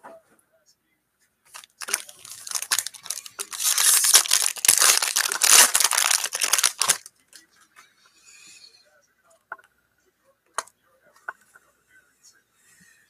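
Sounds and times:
cards rustling: 0:01.5 - 0:07.1
foil wrapper crinkling and tearing: 0:01.5 - 0:07.1.

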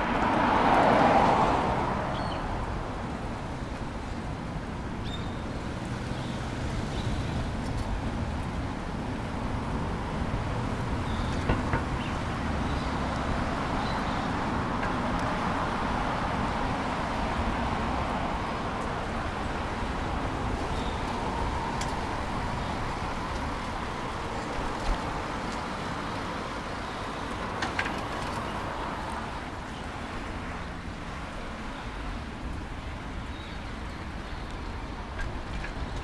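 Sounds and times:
cars driving past: 0:00.0 - 0:04.5.

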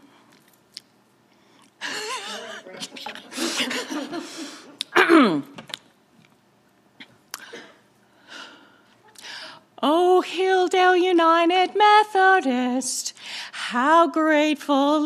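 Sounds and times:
woman giggling: 0:01.8 - 0:04.7
woman laughing: 0:01.8 - 0:04.7.

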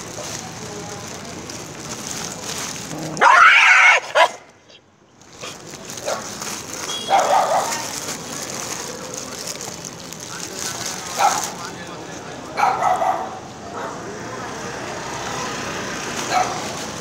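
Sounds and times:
dog calling: 0:03.1 - 0:04.8, 0:07.0 - 0:08.0.

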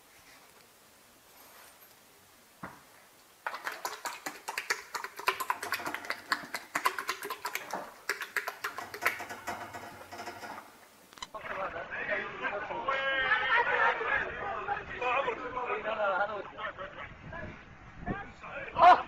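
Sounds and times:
horse licking wet clicks: 0:03.4 - 0:09.3.

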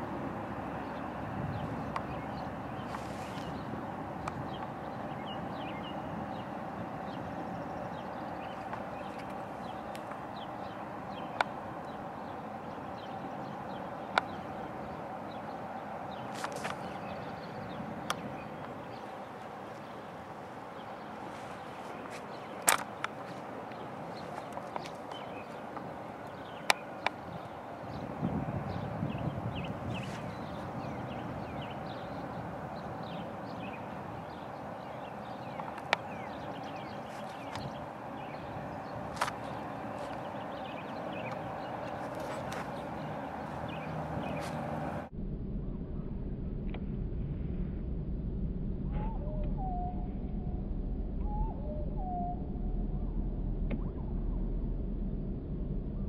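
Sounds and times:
steady background rush: 0:00.0 - 0:45.1
outdoor background noise: 0:00.0 - 0:56.0
small birds chirping: 0:00.6 - 0:45.1
sharp clicks: 0:22.6 - 0:27.2.

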